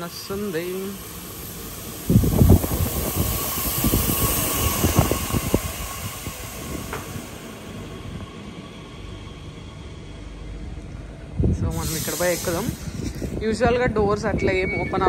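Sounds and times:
train wheels rumbling and clattering: 0.0s - 15.0s
train brake squeal: 14.3s - 15.0s.

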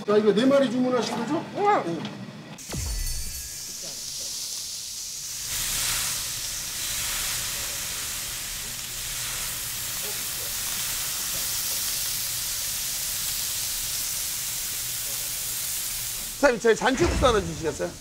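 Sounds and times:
meat sizzling on a hot griddle: 2.9s - 16.8s.

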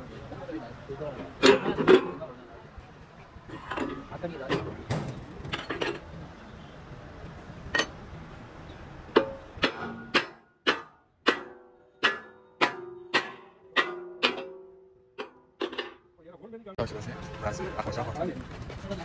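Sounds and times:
hammer striking steel: 9.1s - 16.1s.

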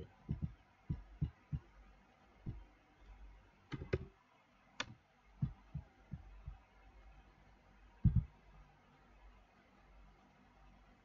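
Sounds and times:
soft low thumps: 0.0s - 1.8s, 2.4s - 2.7s, 5.4s - 6.7s, 8.0s - 8.4s
computer mouse clicks: 3.7s - 4.1s.

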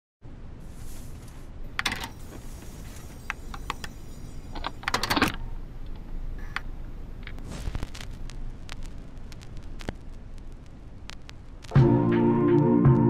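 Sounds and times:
low steady background noise: 0.2s - 13.0s
record changer clicks and clunks: 1.3s - 3.9s, 4.5s - 8.0s.

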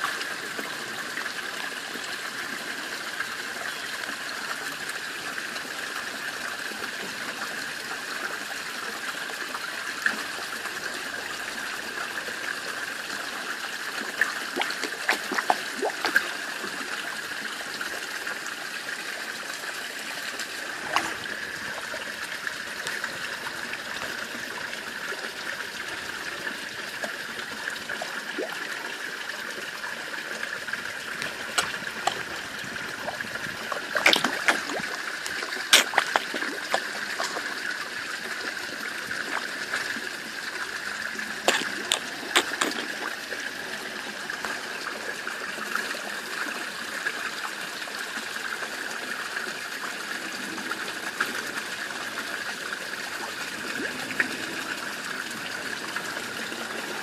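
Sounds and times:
water trickling into pond: 0.0s - 57.0s
fish splashing at surface: 14.2s - 16.6s, 20.6s - 22.1s, 31.0s - 43.6s.

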